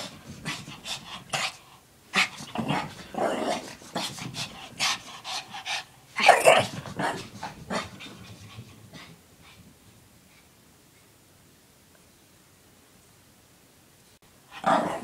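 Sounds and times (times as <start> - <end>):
dog play-growling and huffing: 0.0 - 9.7, 14.5 - 15.0.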